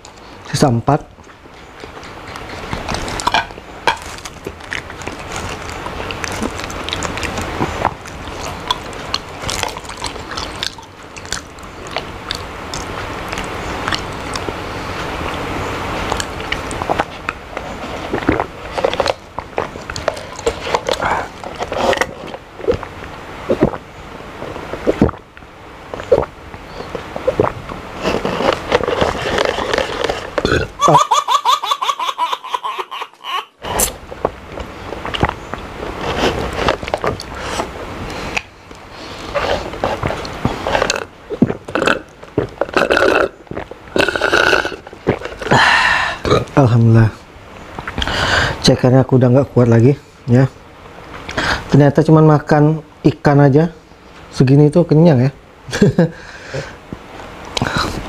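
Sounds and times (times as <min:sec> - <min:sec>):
slurping through a straw: 0:04.0 - 0:15.4, 0:16.0 - 0:22.9, 0:23.5 - 0:25.3, 0:25.9 - 0:30.8, 0:33.6 - 0:46.8.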